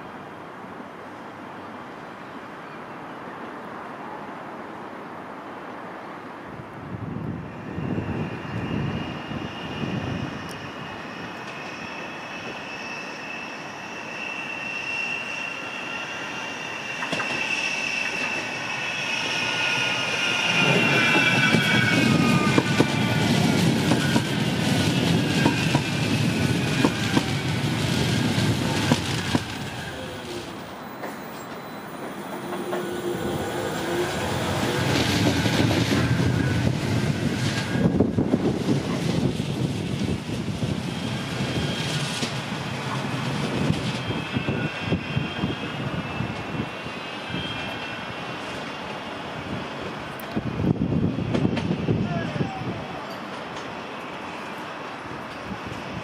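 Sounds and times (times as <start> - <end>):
tram rumbling past: 5.6 - 56.0
tram wheels squealing: 7.2 - 56.0.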